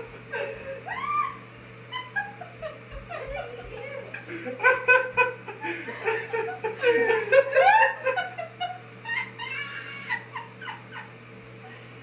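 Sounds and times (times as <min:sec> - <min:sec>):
man and girl laughing: 0:00.0 - 0:11.9
high squealing cry: 0:00.9 - 0:01.5, 0:09.1 - 0:10.5.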